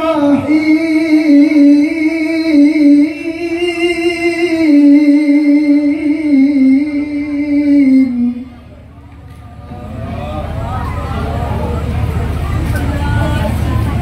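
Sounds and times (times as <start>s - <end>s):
man reciting melodically: 0.0s - 8.6s.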